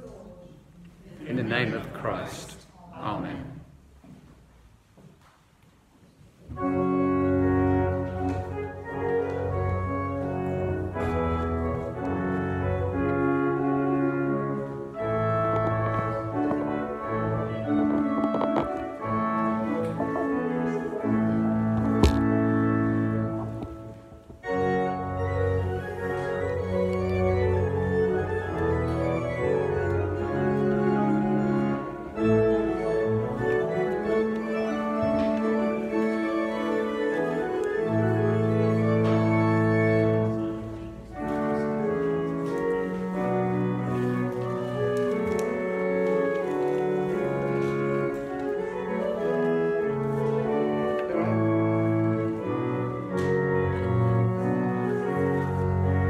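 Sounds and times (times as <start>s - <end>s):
organ playing sustained chords: 6.5s - 56.0s.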